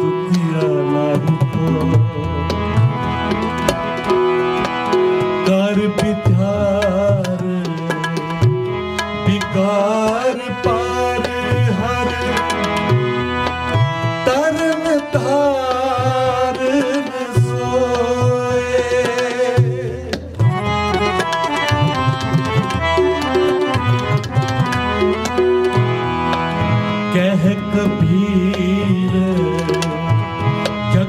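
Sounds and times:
man singing: 0.0 - 3.6, 5.4 - 13.1, 13.7 - 21.2, 27.0 - 31.0
harmonium chords: 0.0 - 31.0
tabla rhythm: 0.0 - 31.0.

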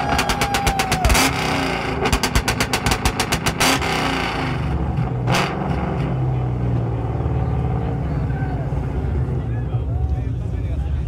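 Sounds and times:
rapid exhaust bangs: 0.0 - 7.2
engine low rumble: 0.0 - 11.0.

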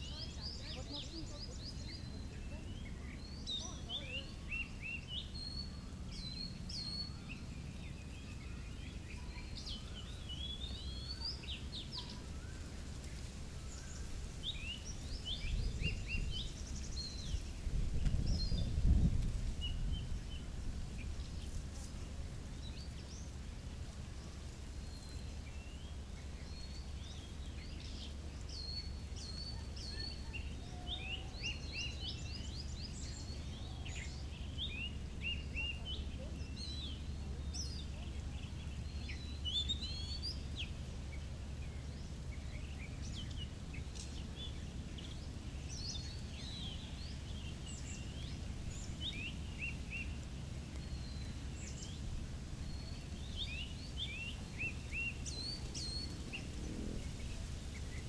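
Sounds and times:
small birds chirping: 0.0 - 58.0
steady low rumble: 31.3 - 58.0.

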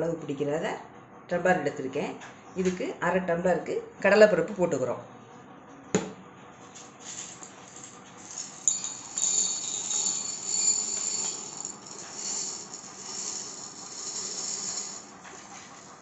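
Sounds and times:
lentils clattering into metal cup: 7.1 - 16.0.

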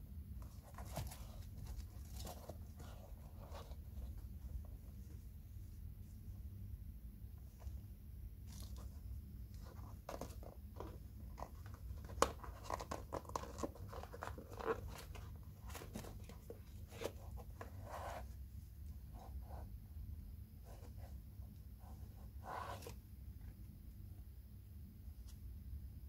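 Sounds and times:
steady low hum: 0.0 - 26.0
sneaker rustling and creaking: 0.6 - 5.0.

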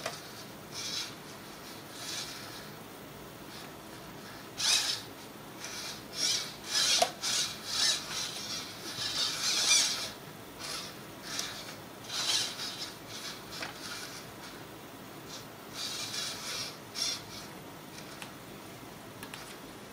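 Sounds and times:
servos whirring: 0.8 - 2.7, 4.6 - 14.6, 15.3 - 17.5.

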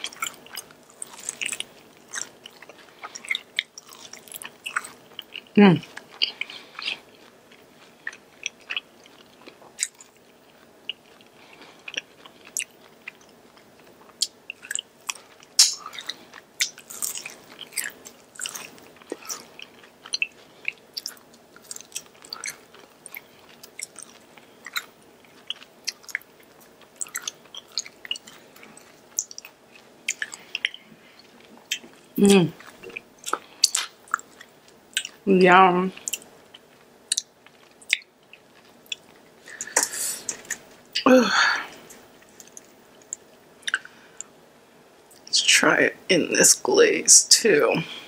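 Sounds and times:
chewing crunchy food: 0.0 - 35.3, 35.9 - 41.0, 41.7 - 44.4
wet mouth clicks: 15.6 - 16.8, 37.1 - 37.3, 38.9 - 40.6.

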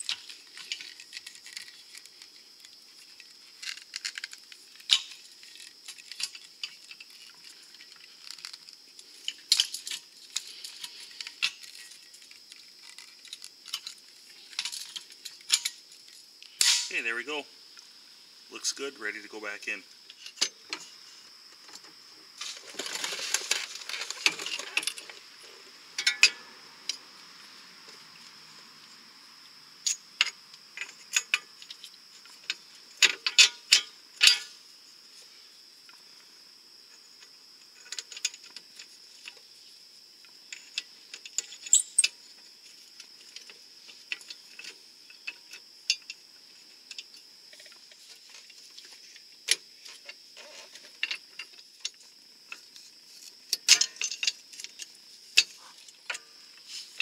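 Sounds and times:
metal clinks and knocks: 26.0 - 26.5, 29.8 - 34.5, 53.5 - 56.4
short scraping rustle: 56.6 - 57.0.

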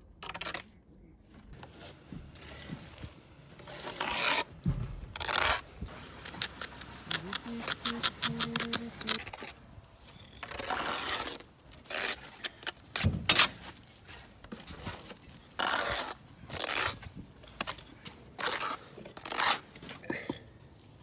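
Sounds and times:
trowel scraping mortar: 3.6 - 4.5, 5.2 - 13.8, 15.0 - 20.0.

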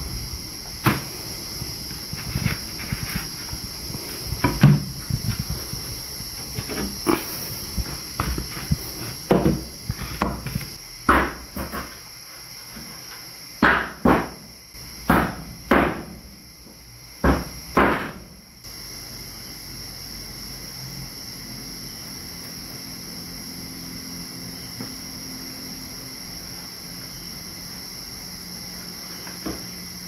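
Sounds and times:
crickets calling: 0.0 - 30.0
sharp knocks and thumps: 2.0 - 12.0, 13.6 - 14.4, 15.1 - 16.2, 17.2 - 18.3.

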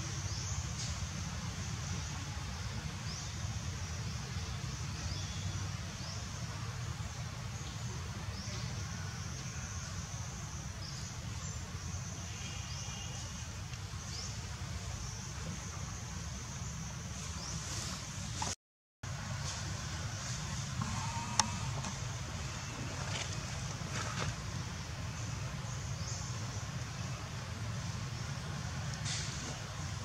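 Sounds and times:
constant low rumble: 0.0 - 30.0.

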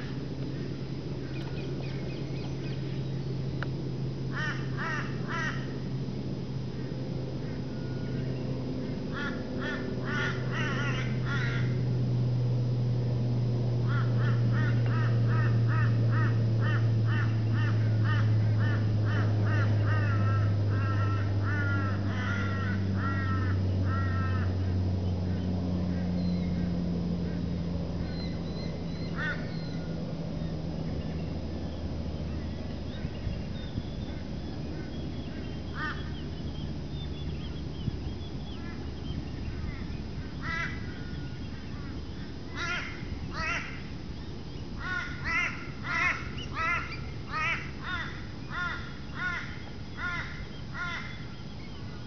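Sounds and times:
birds calling: 0.0 - 52.0
steady low hum: 0.0 - 52.0.

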